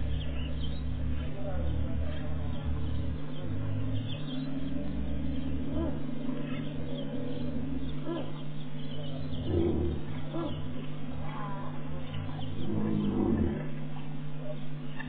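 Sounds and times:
low rumble: 0.0s - 15.0s
steady low hum: 0.0s - 15.0s
lion roaring in deep grunts: 9.3s - 14.1s.

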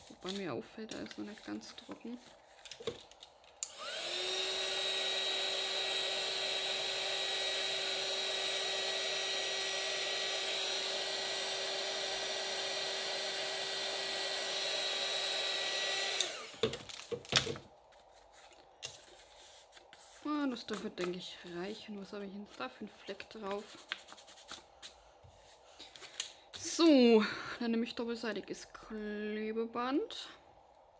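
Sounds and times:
heat gun fan blowing: 0.0s - 17.7s.

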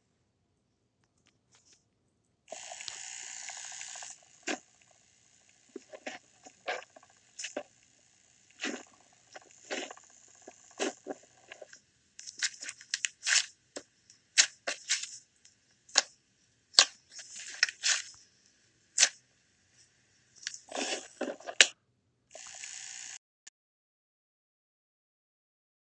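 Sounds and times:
slime squishing and crackling: 8.6s - 11.7s.

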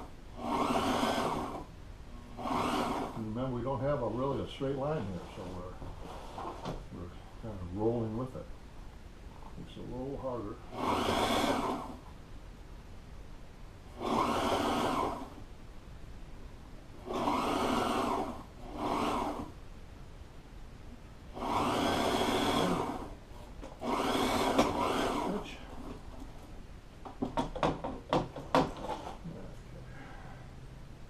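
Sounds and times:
sewing machine running: 0.0s - 1.7s, 2.4s - 3.2s, 10.7s - 12.0s, 13.9s - 15.4s, 17.0s - 19.5s, 21.3s - 25.6s.

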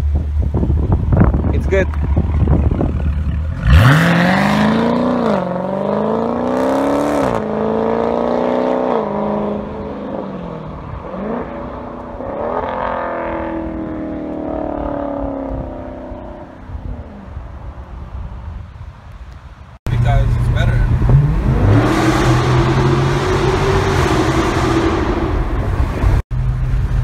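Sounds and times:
car engine revving and accelerating: 2.0s - 16.5s, 19.9s - 27.0s.

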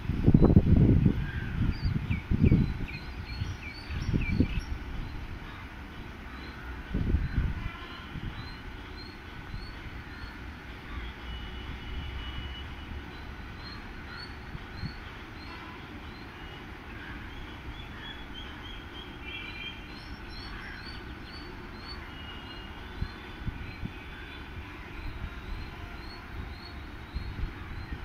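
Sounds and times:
birds chirping: 1.3s - 11.1s, 12.5s - 28.0s.

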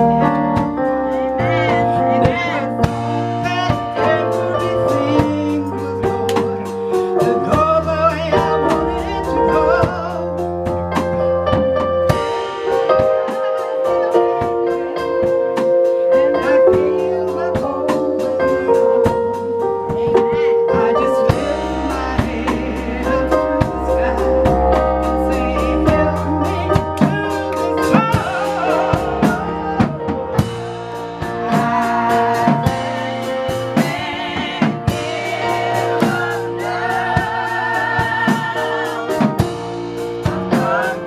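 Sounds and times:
drums keeping a steady beat: 0.0s - 41.0s
keyboard chords: 0.0s - 41.0s
woman singing with vibrato: 1.3s - 2.8s.

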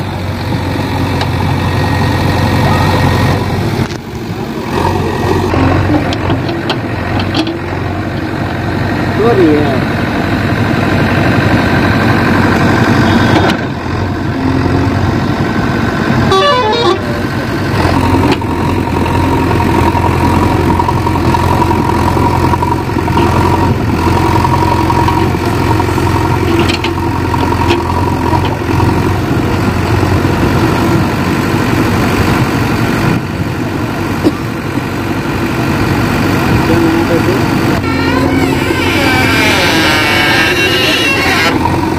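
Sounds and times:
diesel engine running hard: 0.0s - 41.9s.

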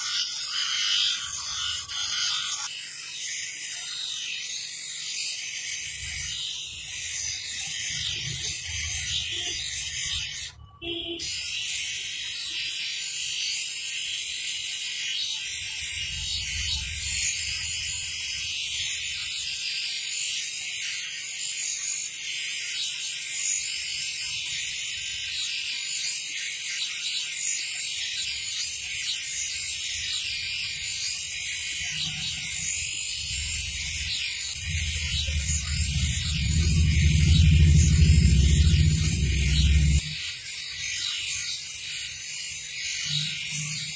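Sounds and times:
high grinding hiss: 31.8s - 40.2s
machine low rumble: 32.4s - 40.2s.

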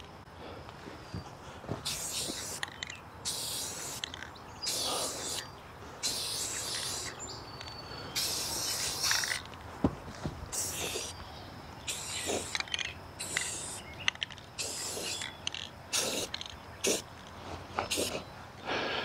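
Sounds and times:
spray paint can hissing: 1.8s - 7.3s, 8.2s - 9.5s, 10.5s - 11.2s, 11.8s - 17.1s, 17.8s - 18.2s.

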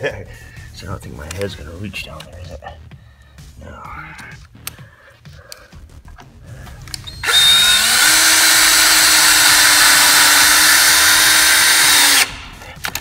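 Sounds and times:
cordless drill driving a screw: 6.9s - 12.4s.

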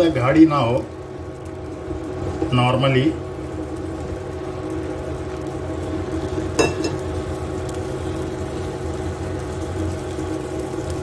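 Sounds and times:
steady low hum: 0.0s - 11.0s
syrup boiling in a pan: 0.0s - 11.0s
metal utensil clinking on pan: 6.6s - 7.0s.

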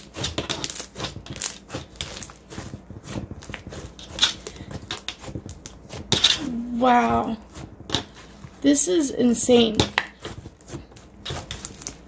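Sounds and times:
slime crackling and popping: 0.0s - 6.4s, 9.8s - 12.0s.

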